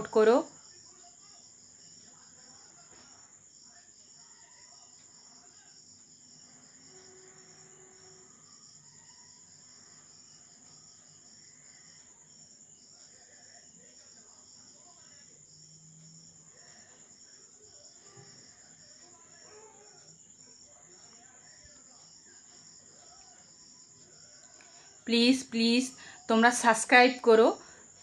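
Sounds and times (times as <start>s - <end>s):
crickets chirping: 0.0s - 28.0s.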